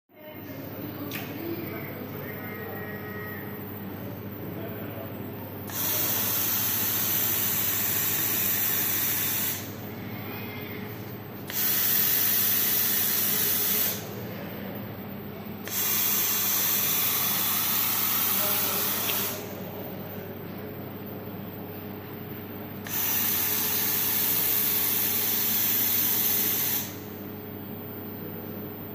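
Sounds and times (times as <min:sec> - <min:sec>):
steady machine hum: 0:00.1 - 0:28.9
laser welding head hissing: 0:05.7 - 0:09.8, 0:11.4 - 0:14.1, 0:15.6 - 0:19.5, 0:22.8 - 0:27.1.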